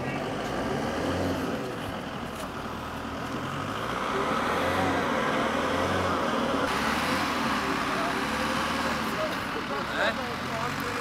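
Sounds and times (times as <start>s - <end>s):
car engine and tyres running: 0.0s - 11.0s.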